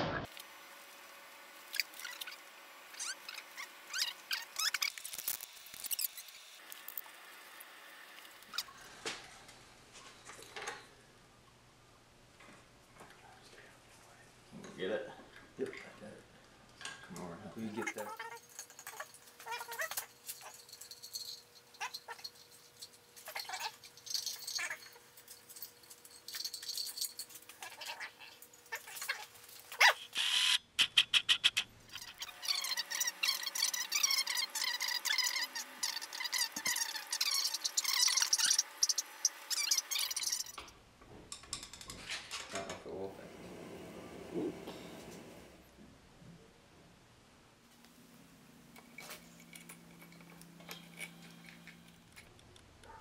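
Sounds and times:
metal clinks and scrapes: 17.9 - 29.8, 32.0 - 40.6, 48.7 - 52.4
short squeak: 29.8 - 40.6.

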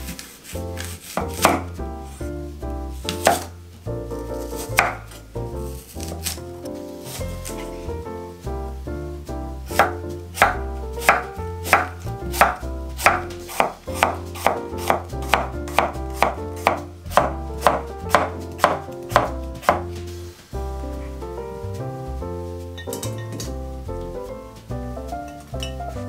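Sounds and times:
background music: 0.0 - 26.0
knife chopping on wooden board: 0.1 - 1.8, 3.1 - 3.5, 4.5 - 5.2, 6.0 - 6.4, 9.7 - 20.0.

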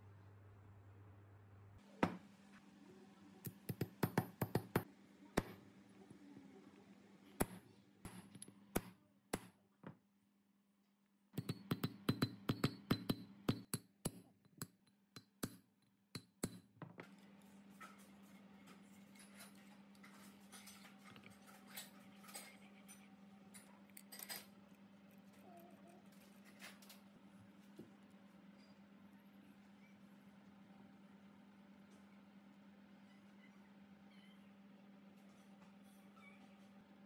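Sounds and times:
hammer tapping on steel: 11.4 - 15.6.

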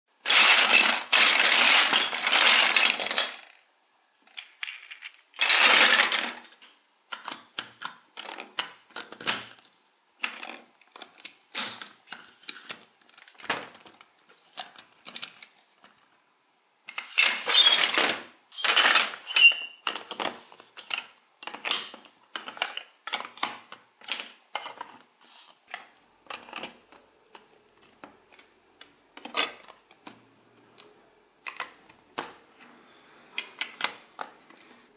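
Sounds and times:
plastic toy bricks clattering: 0.2 - 3.6, 4.3 - 9.6, 10.2 - 16.0, 16.9 - 25.1, 25.7 - 30.0.

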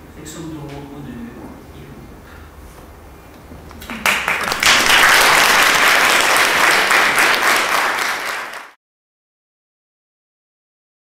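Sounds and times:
audience applauding: 3.8 - 8.8.

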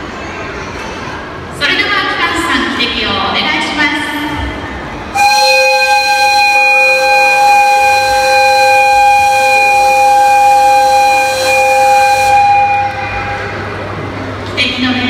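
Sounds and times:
two-note locomotive whistle: 5.1 - 13.8.

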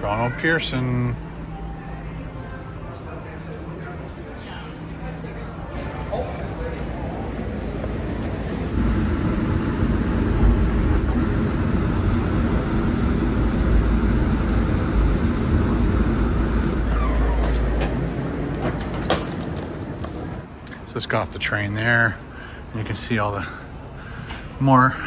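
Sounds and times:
train low rumble: 1.1 - 20.6
falling whine of train slowing: 5.8 - 20.5.

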